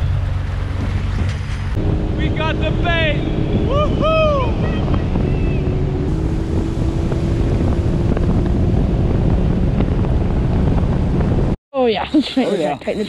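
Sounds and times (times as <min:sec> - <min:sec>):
watercraft engine drone: 0:00.0 - 0:07.2
wind buffeting microphone: 0:00.0 - 0:13.0.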